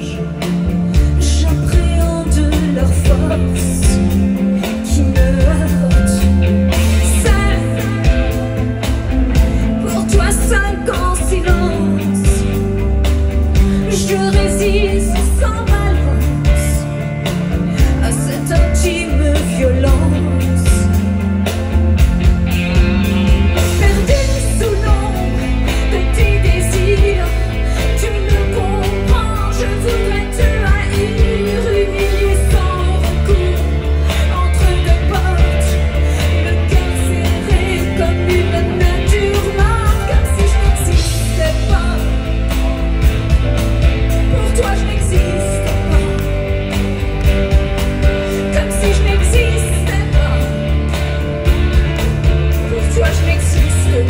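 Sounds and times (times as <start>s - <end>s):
woman singing: 0.0s - 22.1s, 22.7s - 54.0s
live pop rock band: 0.0s - 54.0s.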